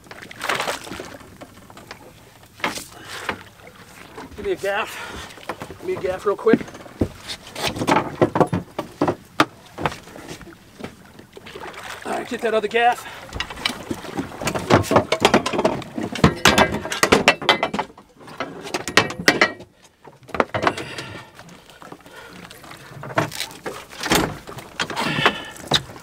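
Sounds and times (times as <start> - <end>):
fishing gear clicking and rattling: 0.0 - 3.5, 13.2 - 26.0.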